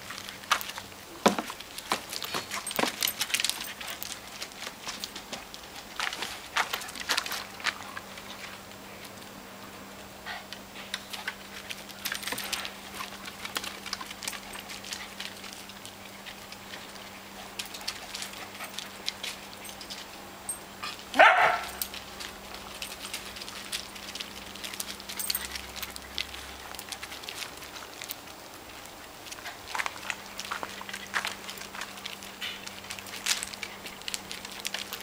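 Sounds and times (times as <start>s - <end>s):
dog paws tapping and scratching: 0.0s - 9.4s, 10.3s - 35.0s
dog barking: 21.2s - 21.8s.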